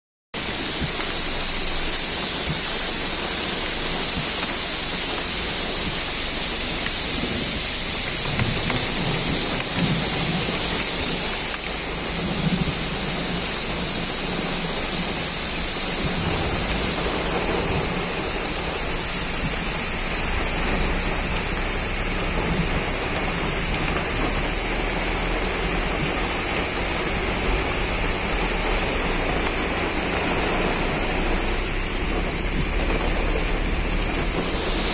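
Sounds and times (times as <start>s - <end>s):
steady rain falling: 0.4s - 34.9s.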